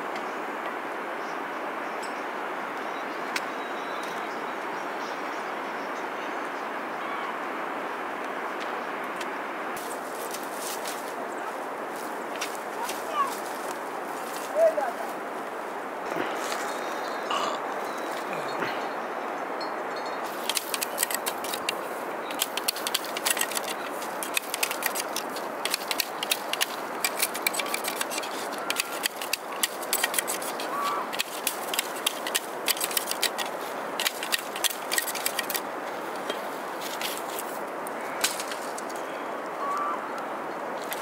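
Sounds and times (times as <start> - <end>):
bamboo strips clicking: 20.3 - 37.5.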